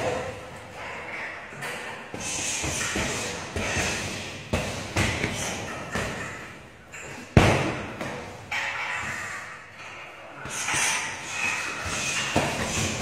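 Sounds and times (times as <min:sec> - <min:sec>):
punches thudding on punching bag: 0:02.2 - 0:06.5, 0:07.3 - 0:08.4, 0:11.8 - 0:13.0.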